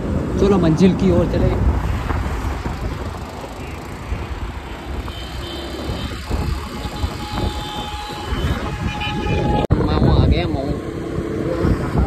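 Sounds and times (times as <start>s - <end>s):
scooter road noise: 0.0s - 9.9s
wind rushing over microphone: 0.0s - 12.0s.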